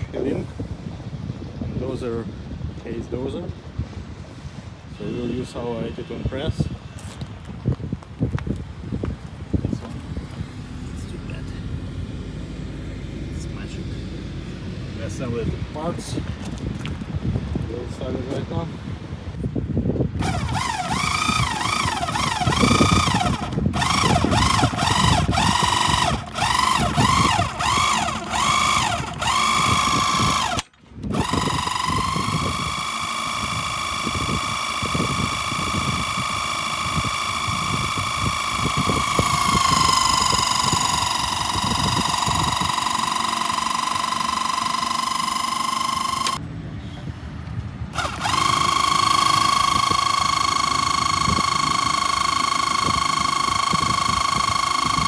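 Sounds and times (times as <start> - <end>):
electric hydraulic pump whining: 20.2 - 46.4, 48.0 - 55.0.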